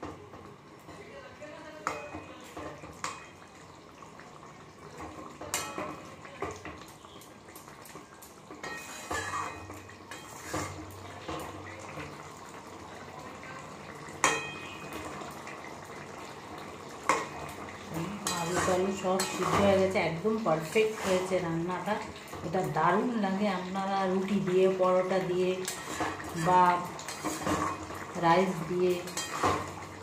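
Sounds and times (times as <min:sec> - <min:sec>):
spatula stirring and scraping pan: 0:05.0 - 0:06.7, 0:08.5 - 0:12.2, 0:17.0 - 0:30.0.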